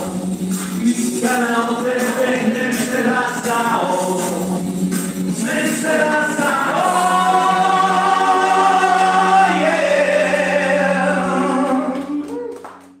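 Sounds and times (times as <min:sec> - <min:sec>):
backing music: 0:00.0 - 0:13.0
handclaps: 0:00.5 - 0:01.1, 0:11.6 - 0:13.0
man singing into microphone: 0:00.8 - 0:04.6, 0:05.3 - 0:12.3.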